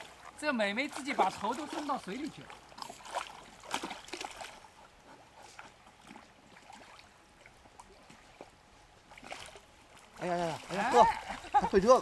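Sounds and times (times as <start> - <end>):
dog splashing in water: 0.0 - 4.8, 5.4 - 11.8
water sloshing: 0.0 - 12.0.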